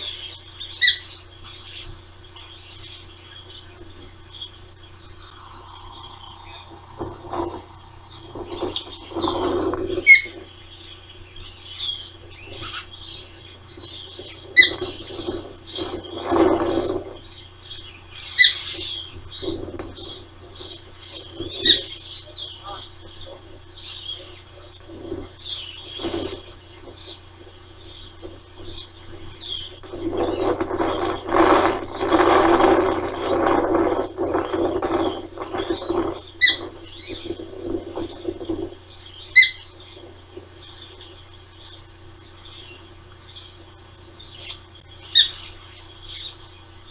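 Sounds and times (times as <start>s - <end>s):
loud osprey chirps: 0.0s - 46.9s
osprey chicks peeping: 0.0s - 46.9s
rustling noise: 5.3s - 10.6s, 12.2s - 17.3s, 18.7s - 21.9s, 24.6s - 39.0s
rough ratchety rasping noise: 24.6s - 40.8s.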